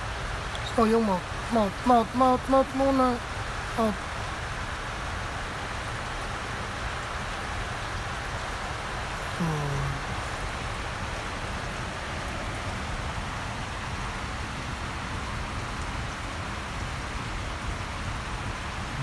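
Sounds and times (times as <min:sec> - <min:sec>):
low voice-like sound: 0:03.8 - 0:04.0, 0:09.4 - 0:10.1.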